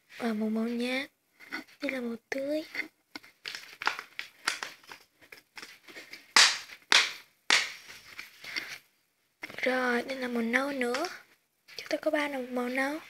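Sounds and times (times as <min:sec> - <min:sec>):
crayons clicking on plastic case: 0:02.6 - 0:07.8, 0:10.7 - 0:12.1.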